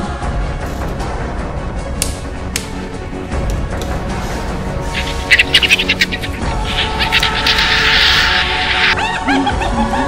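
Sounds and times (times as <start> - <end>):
film score sustained tones: 4.3 - 10.0
high-pitched bursts: 4.9 - 9.0.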